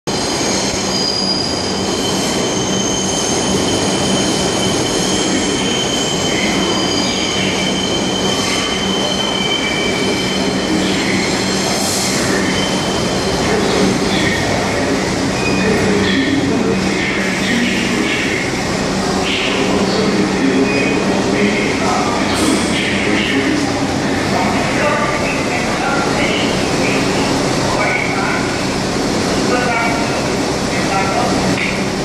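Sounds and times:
loud train rumble: 0.0 - 32.0
train wheels squealing: 0.1 - 13.5, 15.3 - 15.8.

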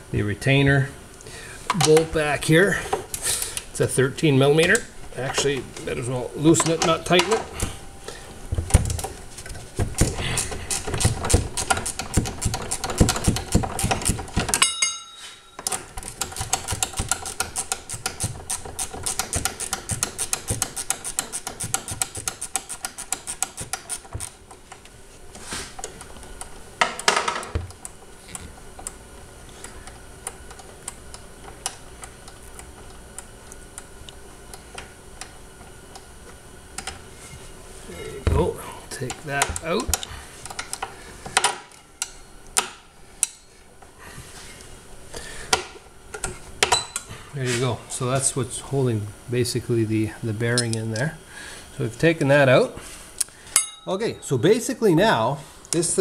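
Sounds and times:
scattered clicks and knocks: 8.5 - 14.9, 15.6 - 24.9
hand ratchet clicking: 10.0 - 14.6, 16.0 - 24.4.

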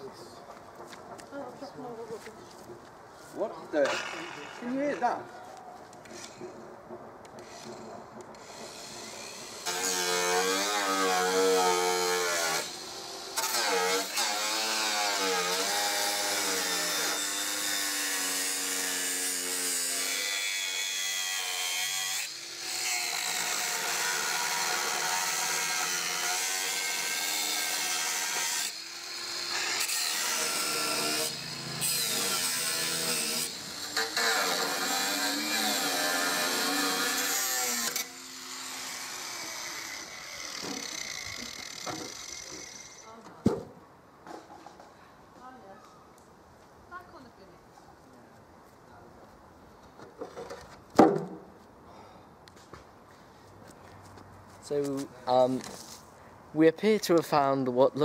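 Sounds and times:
angle grinder cutting metal: 3.8 - 5.2, 7.4 - 43.1.

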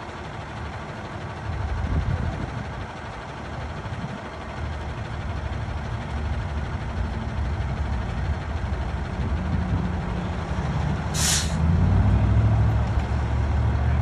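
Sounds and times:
heavy vehicle engine idling: 0.0 - 14.0
short sharp air hiss: 11.1 - 11.6.

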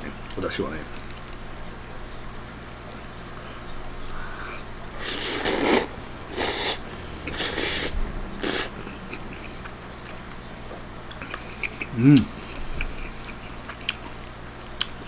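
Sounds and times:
person slurping noodles: 5.0 - 9.5.

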